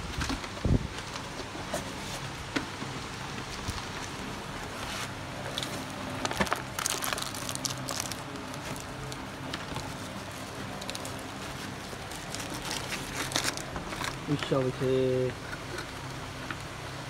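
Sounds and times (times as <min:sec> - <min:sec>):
steady low hum: 0:00.0 - 0:17.0
packaging rustling and crinkling: 0:03.4 - 0:14.6.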